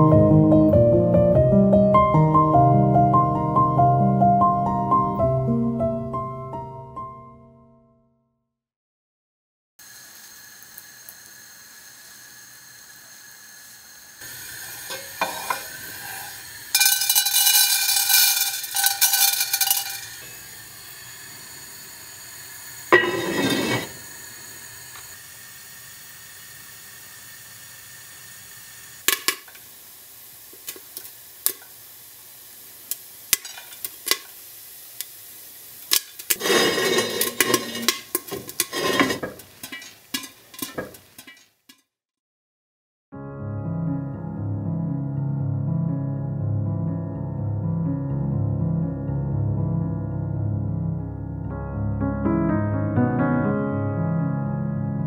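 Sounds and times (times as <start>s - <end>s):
food sizzling in a pot: 9.8s - 41.9s
utensil clinking against pot: 14.9s - 20.4s, 22.9s - 23.9s, 33.3s - 34.3s, 35.9s - 41.8s.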